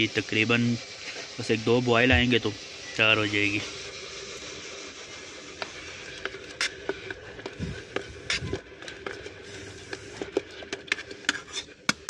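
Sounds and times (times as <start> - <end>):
kettle hiss: 0.0 - 12.0
dull bumps: 2.1 - 2.4.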